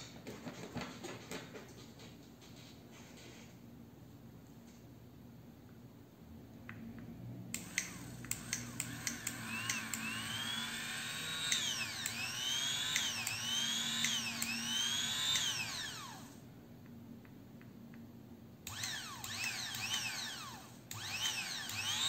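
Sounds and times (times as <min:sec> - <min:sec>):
sharp clicks: 0:07.5 - 0:10.6, 0:11.3 - 0:15.9, 0:18.7 - 0:20.2
blender motor whining: 0:07.6 - 0:16.4, 0:18.7 - 0:22.0.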